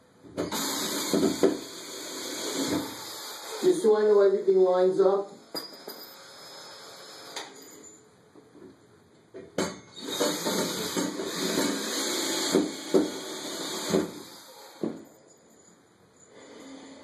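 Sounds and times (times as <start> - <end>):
cordless drill driving screw: 10.0 - 14.8.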